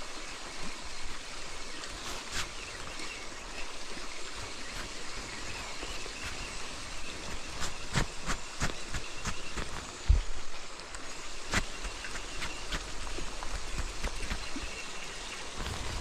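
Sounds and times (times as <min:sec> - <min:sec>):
river water flowing: 0:00.0 - 0:16.0.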